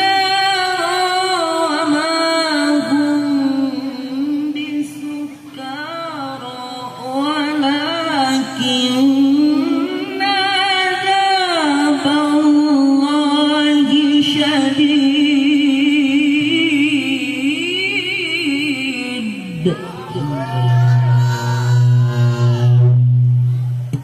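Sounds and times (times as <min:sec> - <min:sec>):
man reciting melodically into microphone: 0:19.1 - 0:21.0.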